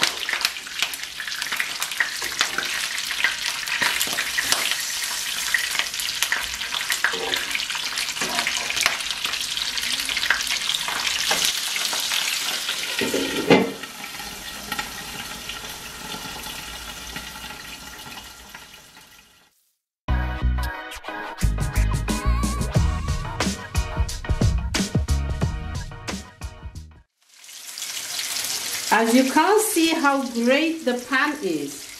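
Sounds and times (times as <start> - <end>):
skewers sizzling in oil: 0.0 - 19.8, 27.2 - 31.9
glass pan lid clanking: 13.0 - 13.9
music with a beat: 20.2 - 27.0.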